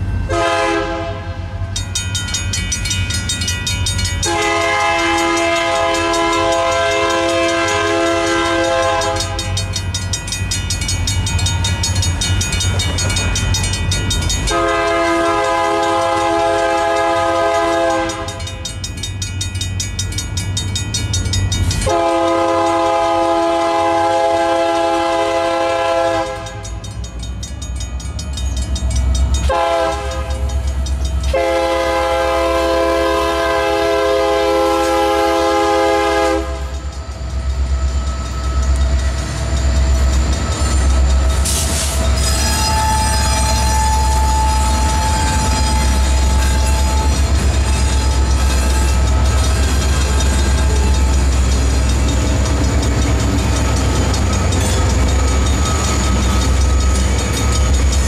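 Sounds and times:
crossing bell ringing: 0:00.0 - 0:58.0
diesel locomotive rumble: 0:00.0 - 0:58.0
train air horn blasts: 0:00.3 - 0:01.6, 0:04.2 - 0:09.6, 0:14.5 - 0:18.5, 0:21.8 - 0:26.7, 0:29.5 - 0:30.5, 0:31.3 - 0:36.8, 0:41.4 - 0:51.1.

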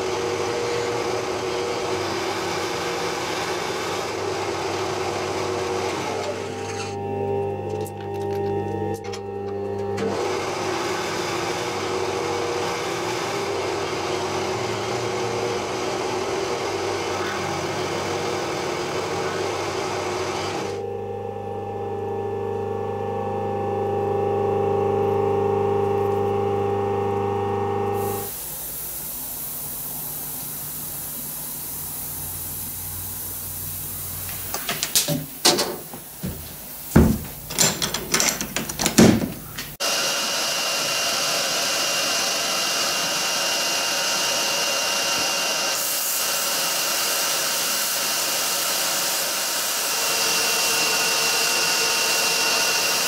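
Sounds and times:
end mill cutting metal: 0:00.0 - 0:22.5, 0:30.3 - 0:53.0
air hissing: 0:28.0 - 0:37.9, 0:40.8 - 0:53.0
cabinet knocks: 0:35.1 - 0:39.6.

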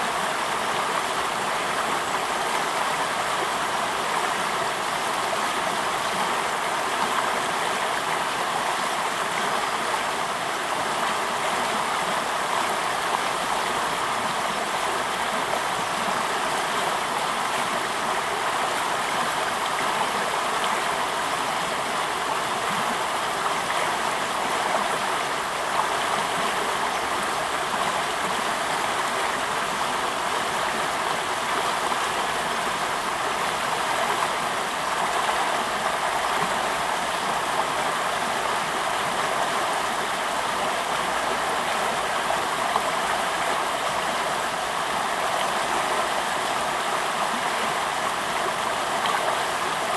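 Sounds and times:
river rushing over rocks: 0:00.0 - 0:49.9.

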